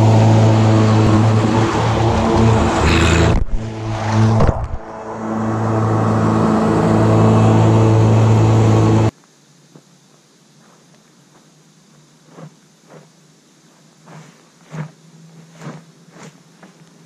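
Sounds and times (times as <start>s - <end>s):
tractor diesel engine running: 0.0s - 9.1s.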